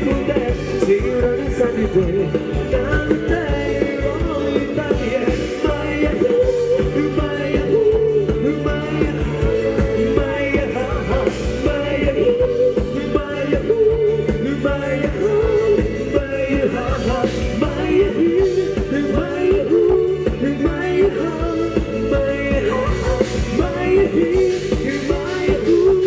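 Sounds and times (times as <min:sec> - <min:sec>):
live band dance music: 0:00.0 - 0:26.0
steady drum beat: 0:00.0 - 0:26.0.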